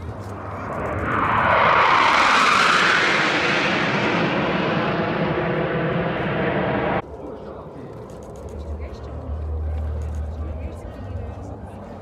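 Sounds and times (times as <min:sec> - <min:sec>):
jets flying past: 0:00.0 - 0:07.0.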